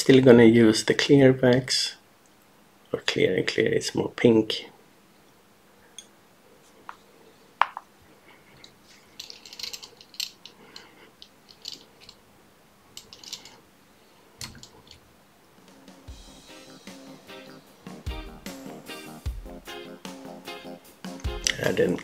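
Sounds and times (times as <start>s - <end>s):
faint music: 13.0s - 22.0s.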